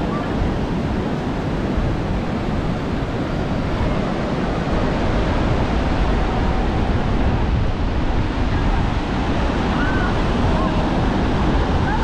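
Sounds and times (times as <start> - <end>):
surf washing onto beach: 0.0 - 12.0
wind rumbling on microphone: 0.0 - 12.0.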